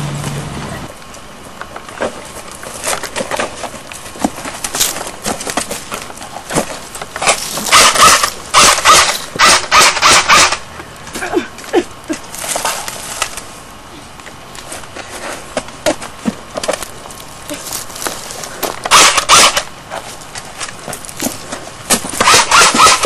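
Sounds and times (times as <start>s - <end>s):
rustles: 0.0s - 23.0s
rapid gunshots: 7.7s - 10.6s, 18.9s - 19.7s, 22.2s - 23.0s.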